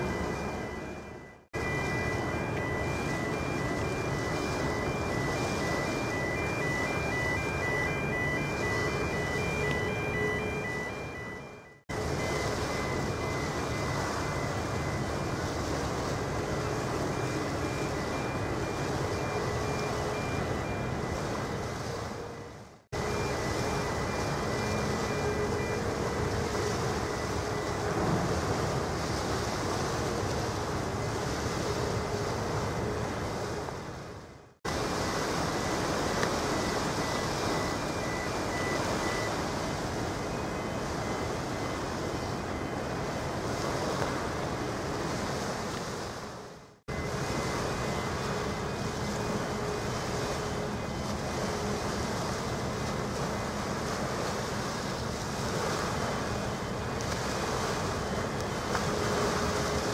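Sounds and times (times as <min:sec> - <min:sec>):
water noise: 0:00.0 - 0:59.9
wind: 0:00.0 - 0:59.9.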